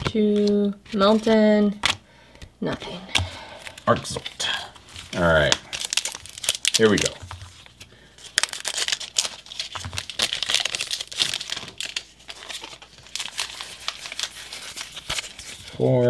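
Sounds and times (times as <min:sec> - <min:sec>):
foil wrapper crinkling and tearing: 0:03.4 - 0:16.0.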